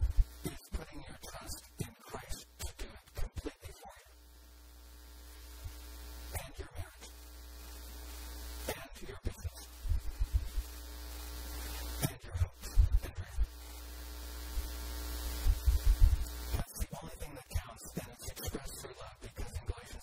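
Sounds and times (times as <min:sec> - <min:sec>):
electrical mains hum: 0:00.0 - 0:20.0.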